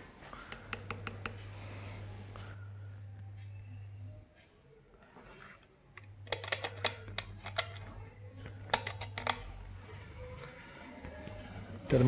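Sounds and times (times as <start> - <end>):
fingers tapping metal: 0.5 - 1.4.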